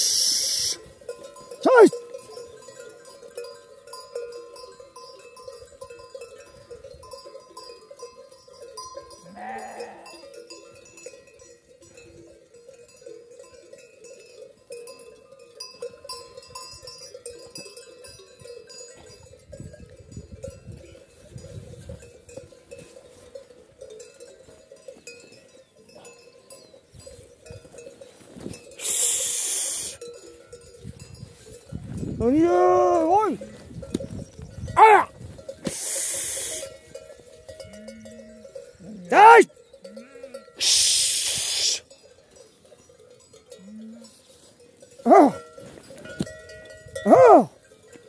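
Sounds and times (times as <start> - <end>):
animal bells jingling: 0.0 - 48.0
sheep bleating: 9.2 - 10.2.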